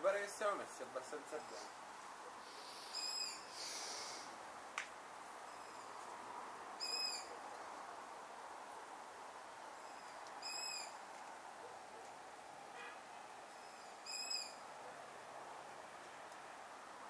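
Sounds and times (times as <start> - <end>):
faint hiss: 0.0 - 17.0
bird repeating high call: 2.8 - 3.5, 6.8 - 7.3, 9.8 - 11.0, 13.6 - 14.6.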